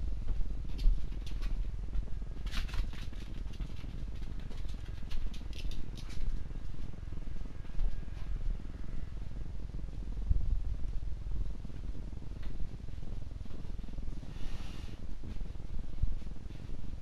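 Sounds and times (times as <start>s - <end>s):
steady low rumble: 0.0s - 17.0s
soft clicking and rustling: 0.2s - 8.4s, 11.6s - 17.0s.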